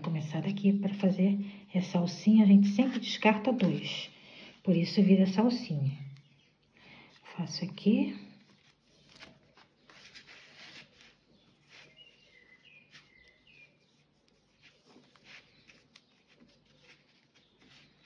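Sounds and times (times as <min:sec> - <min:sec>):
cord rustling and scraping: 0:08.5 - 0:18.0.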